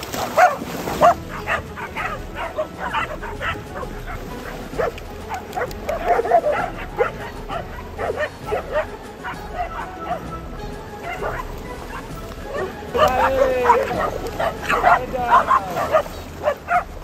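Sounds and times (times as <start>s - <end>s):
dogs barking: 0.0s - 17.0s.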